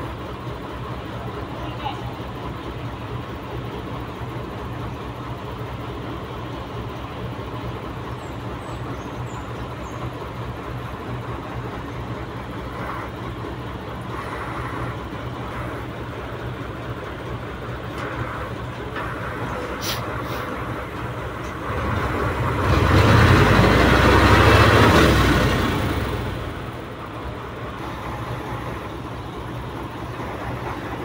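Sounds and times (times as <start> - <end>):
truck engine running: 0.0 - 31.0.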